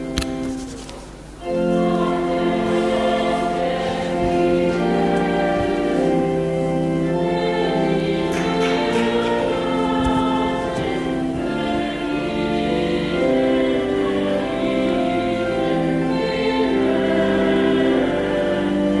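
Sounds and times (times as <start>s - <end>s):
choir singing with organ: 0.0s - 19.0s
organ chord: 0.0s - 19.0s.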